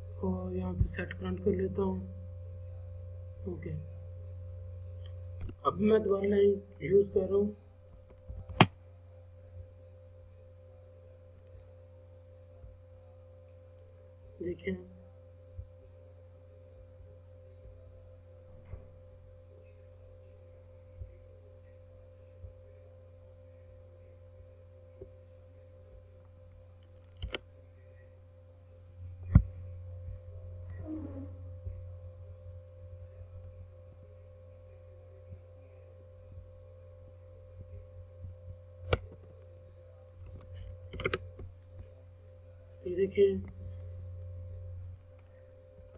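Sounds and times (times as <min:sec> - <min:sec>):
electrical hum: 0:00.0 - 0:45.9
mouse clicks: 0:26.8 - 0:27.4, 0:40.3 - 0:41.2.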